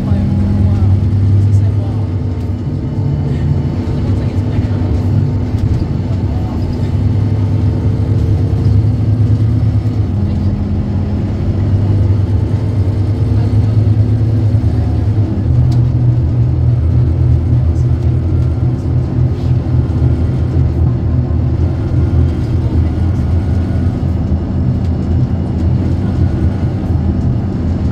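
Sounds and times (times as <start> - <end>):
bus diesel engine running: 0.0 - 27.9.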